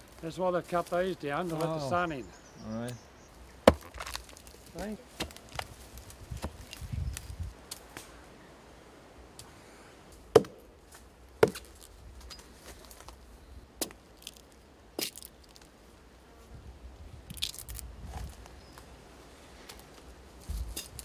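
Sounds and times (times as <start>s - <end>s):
sticks snapping underfoot: 3.8s - 8.1s, 13.8s - 15.7s, 17.3s - 18.4s.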